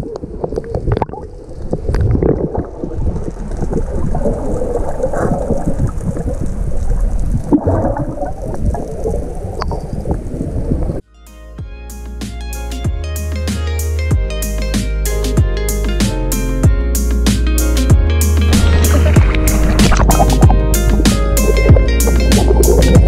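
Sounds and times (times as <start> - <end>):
underwater bubbles rushing: 0.0 - 11.0, 18.4 - 23.0
guitar music: 11.1 - 23.0
swimmers splashing: 18.5 - 20.6.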